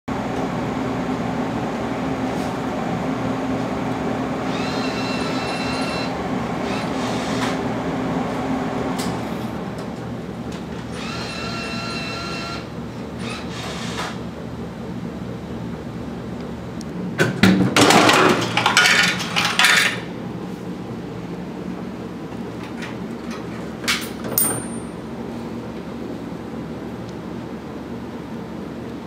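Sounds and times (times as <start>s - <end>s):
bill acceptor motor whirring: 4.4s - 7.8s, 10.6s - 14.3s.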